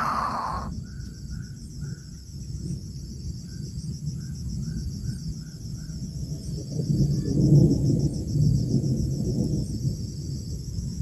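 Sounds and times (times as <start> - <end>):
insects trilling: 0.0 - 11.0.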